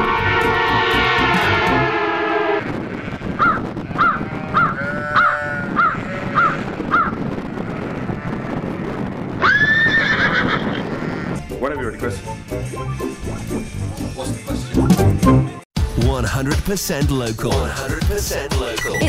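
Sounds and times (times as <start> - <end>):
horse whinnying: 3.4 - 7.1, 9.4 - 11.4
crow cawing: 3.4 - 7.2.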